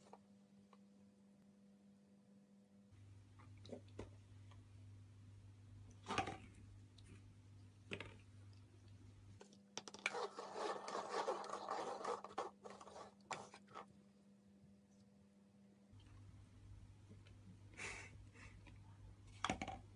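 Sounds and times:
paper cups scraping on floor: 9.9 - 13.9.

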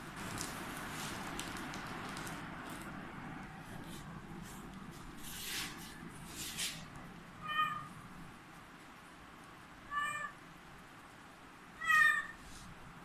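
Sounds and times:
kitten meowing: 7.4 - 7.9, 9.9 - 10.4, 11.8 - 12.4.

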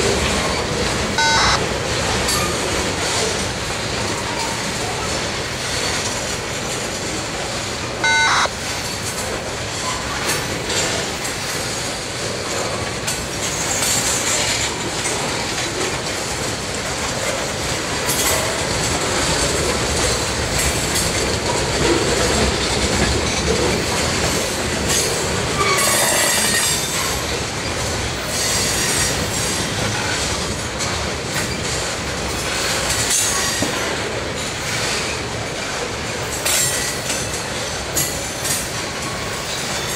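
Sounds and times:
freight train wheels on rails: 0.0 - 39.9
short tone: 1.2 - 1.7, 8.0 - 8.5
wheel squeal: 25.6 - 26.8.

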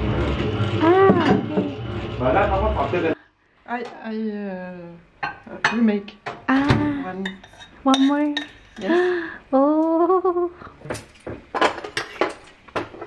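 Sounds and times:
dishes and cutlery clinking: 7.0 - 9.0, 10.9 - 13.0.

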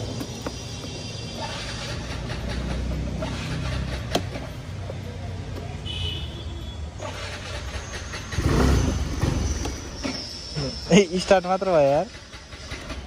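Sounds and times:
scooter engine turning over: 7.0 - 10.2.

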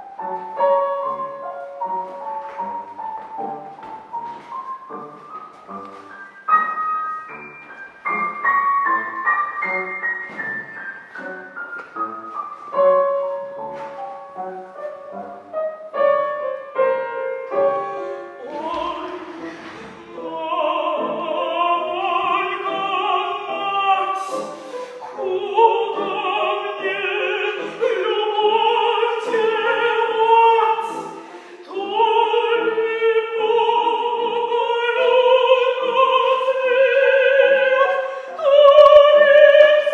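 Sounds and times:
piano notes descending: 0.0 - 28.7
operatic voice singing: 18.4 - 39.9.

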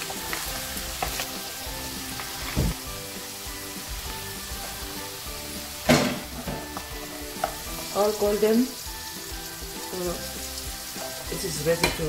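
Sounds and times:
potatoes sizzling in oil: 0.0 - 12.0.

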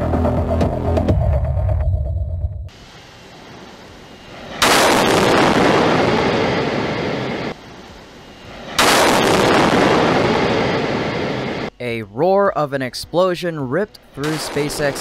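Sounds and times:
loud explosion blast rumbling: 4.4 - 7.6, 8.5 - 11.7.

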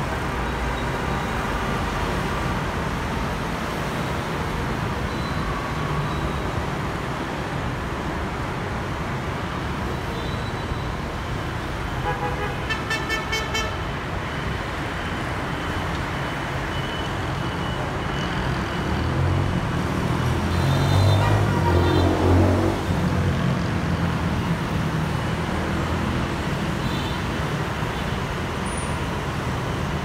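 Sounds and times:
road traffic noise: 0.0 - 30.0
motorbikes and cars passing: 17.8 - 30.0.

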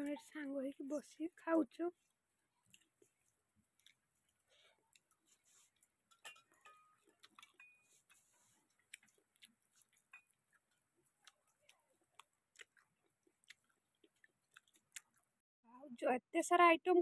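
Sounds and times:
quiet chewing: 1.9 - 15.4
small clicks and taps on steel bowls: 5.8 - 8.3, 10.0 - 10.4
faint steel rings: 6.1 - 7.0.

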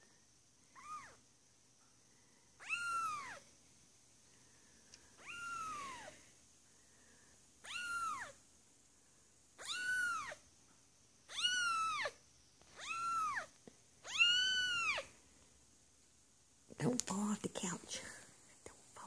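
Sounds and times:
kitten meowing: 0.8 - 1.2, 2.6 - 3.4, 5.2 - 6.1, 7.6 - 8.4, 9.6 - 10.4, 11.3 - 12.2, 12.8 - 15.1.

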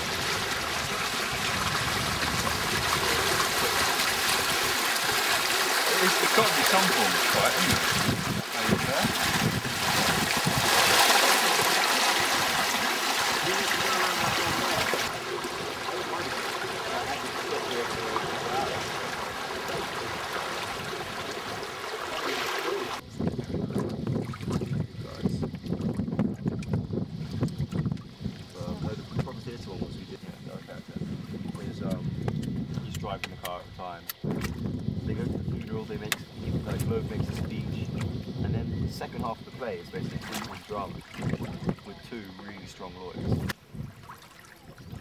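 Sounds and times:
water rushing around canoe: 0.0 - 29.4, 39.4 - 45.0
wind: 0.0 - 45.0.

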